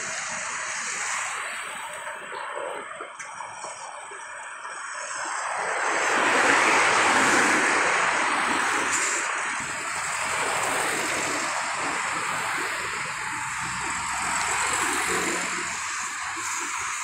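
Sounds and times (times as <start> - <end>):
road traffic passing: 4.8 - 17.0.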